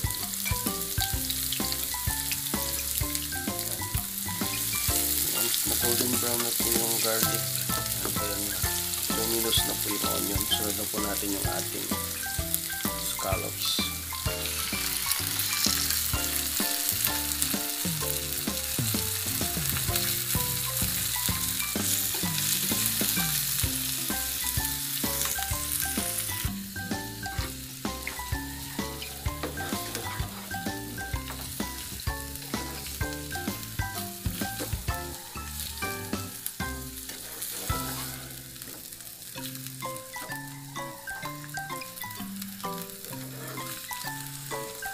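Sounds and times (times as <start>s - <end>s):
scallops sizzling in hot oil: 0.0s - 44.9s
plastic spatula scraping pan: 37.1s - 38.8s.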